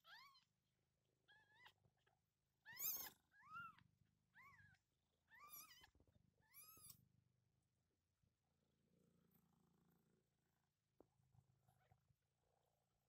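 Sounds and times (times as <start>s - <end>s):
cat purring faintly: 8.8s - 13.0s.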